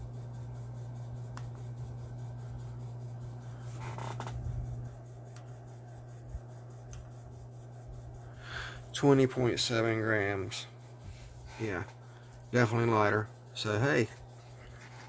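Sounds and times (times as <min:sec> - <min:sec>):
fingers rubbing on scale: 0:00.0 - 0:15.0
steady low hum: 0:00.0 - 0:15.0.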